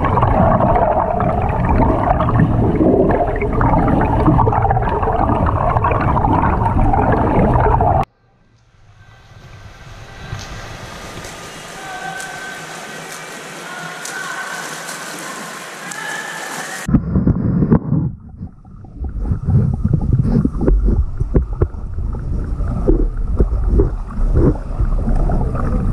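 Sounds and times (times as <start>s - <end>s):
low underwater rumble: 0.0s - 8.1s, 16.8s - 25.9s
underwater bubbling and sloshing: 0.0s - 8.1s, 16.8s - 25.9s
swimmer splashing: 9.2s - 16.9s.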